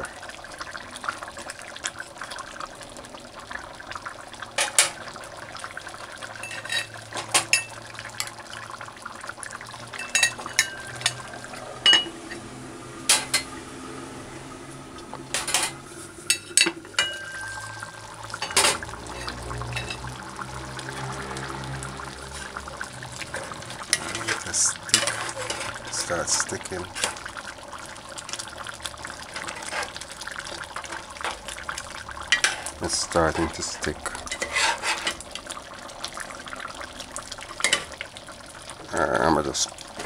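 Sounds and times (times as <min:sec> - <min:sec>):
stew bubbling: 0:00.0 - 0:40.0
metal spoon clinking on pot: 0:06.4 - 0:06.9, 0:10.0 - 0:11.2, 0:16.3 - 0:17.6.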